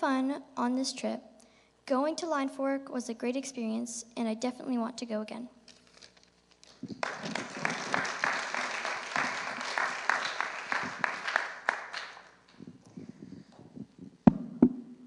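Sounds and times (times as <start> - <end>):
congregation applauding: 6.6 - 12.5.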